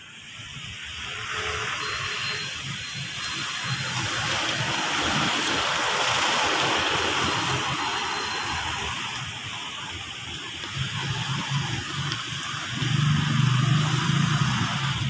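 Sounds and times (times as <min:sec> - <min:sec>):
tyre hiss on wet road: 0:00.0 - 0:15.0.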